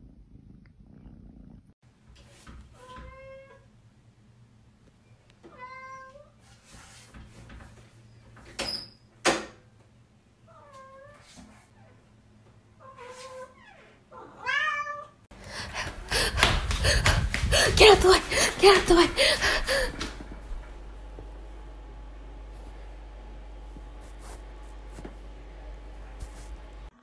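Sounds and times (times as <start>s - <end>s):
cat meowing: 14.2s - 15.2s.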